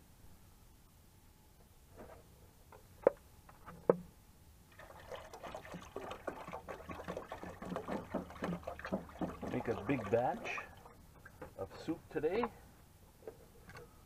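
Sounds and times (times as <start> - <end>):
water pouring into a pot: 4.7 - 11.0.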